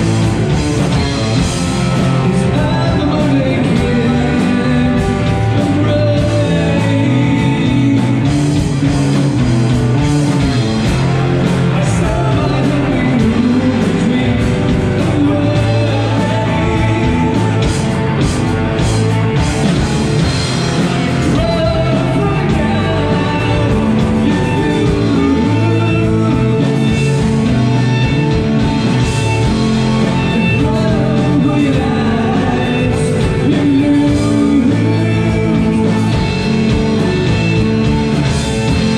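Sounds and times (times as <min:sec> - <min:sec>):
lead vocalist singing: 0:00.0 - 0:38.9
rock band playing: 0:00.0 - 0:38.9.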